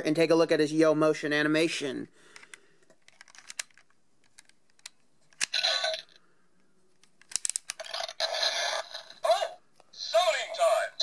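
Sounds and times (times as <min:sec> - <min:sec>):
plastic clicks: 0:02.3 - 0:05.6, 0:07.0 - 0:07.8.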